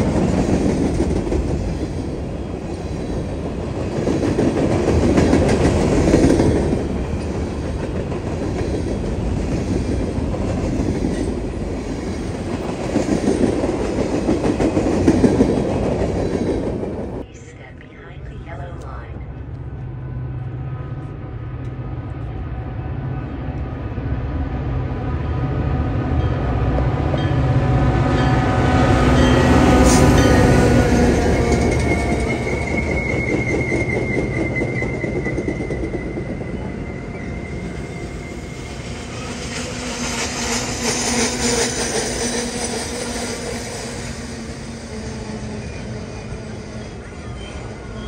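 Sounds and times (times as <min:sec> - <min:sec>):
train wheels clattering over rails: 0:00.0 - 0:17.2, 0:38.9 - 0:45.8
diesel locomotive engine rumble: 0:00.0 - 0:48.0
high wheel squeal: 0:31.2 - 0:41.8.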